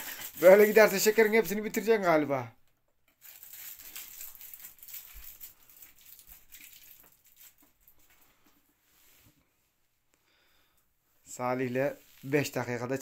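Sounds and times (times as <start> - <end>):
candy wrapper crinkling: 0.0 - 2.0, 3.1 - 8.2.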